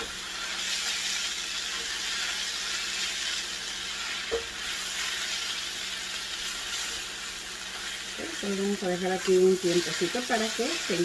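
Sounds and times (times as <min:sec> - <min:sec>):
food sizzling in a skillet: 0:00.0 - 0:11.0.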